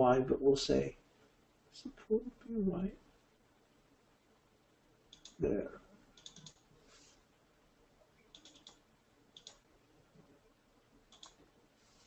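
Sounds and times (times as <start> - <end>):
computer mouse clicks: 5.1 - 5.4, 6.2 - 6.7, 8.2 - 9.7, 11.1 - 11.4.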